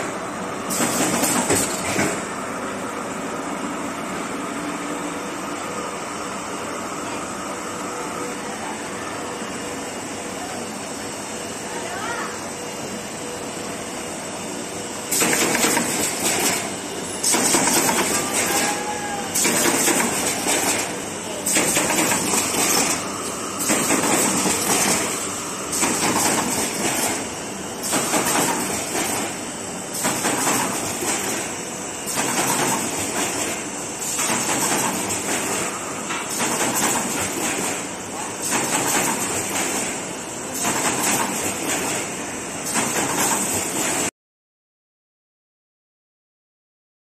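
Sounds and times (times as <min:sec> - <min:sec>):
steady background machine noise: 0:00.0 - 0:44.1
machine noise bursts: 0:15.0 - 0:44.1.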